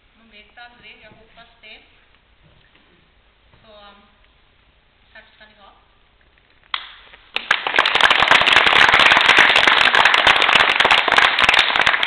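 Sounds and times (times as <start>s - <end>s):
audience applauding: 7.3s - 12.0s.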